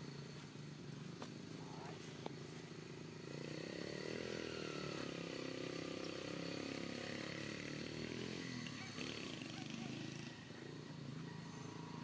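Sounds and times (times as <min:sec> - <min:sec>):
small engine running: 0:00.0 - 0:12.0.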